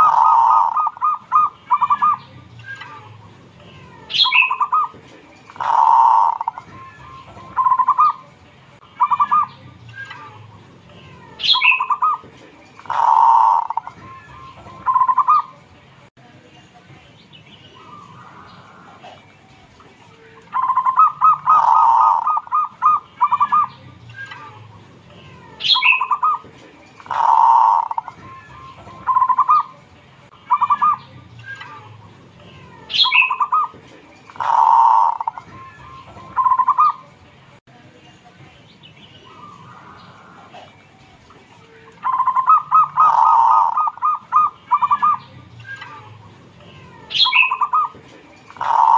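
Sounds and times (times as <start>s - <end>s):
dove cooing: 0.0s - 2.2s, 4.1s - 6.7s, 7.3s - 8.2s, 11.4s - 14.0s, 14.8s - 15.5s, 20.5s - 23.7s, 25.7s - 26.4s, 27.0s - 28.2s, 32.9s - 35.5s, 36.3s - 37.0s, 42.0s - 45.2s, 47.1s - 48.9s.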